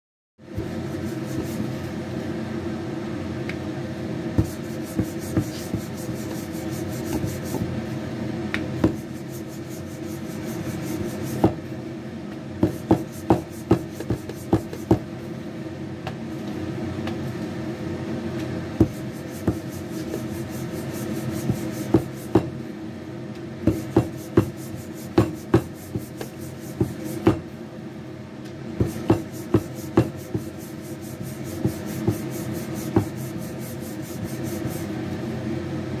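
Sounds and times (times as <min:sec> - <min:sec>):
steady low hum: 0:00.4 - 0:36.0
rolling pin rolling dough: 0:04.4 - 0:07.8, 0:08.7 - 0:11.7, 0:12.6 - 0:15.1, 0:18.8 - 0:22.6, 0:23.6 - 0:27.5, 0:28.8 - 0:35.1
rolling pin knocking on board: 0:21.9 - 0:22.5, 0:25.2 - 0:25.7, 0:28.8 - 0:30.4.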